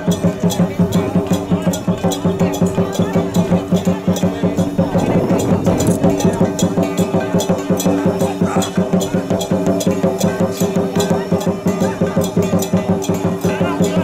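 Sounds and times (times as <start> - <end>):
drum and cymbal strokes: 0.0 - 14.0
held droning tone: 4.4 - 7.4.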